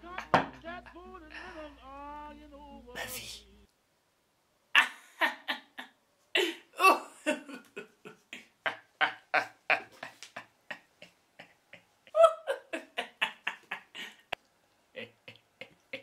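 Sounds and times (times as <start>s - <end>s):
young men laughing hard: 4.8s - 11.5s, 12.1s - 14.3s.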